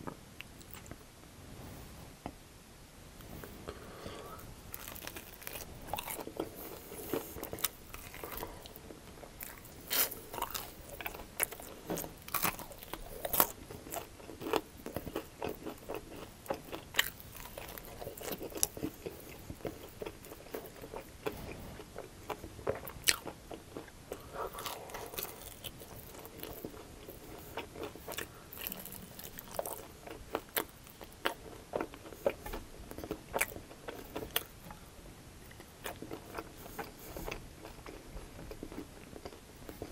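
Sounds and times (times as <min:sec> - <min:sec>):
wet chewing: 0:04.7 - 0:08.8, 0:09.4 - 0:34.5.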